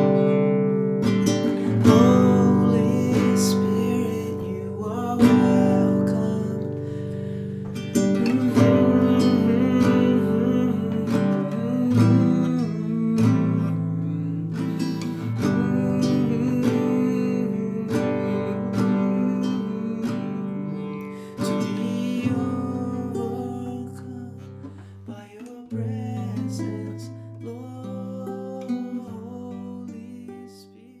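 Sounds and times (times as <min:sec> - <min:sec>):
classical guitar strummed chords: 0:00.0 - 0:31.0.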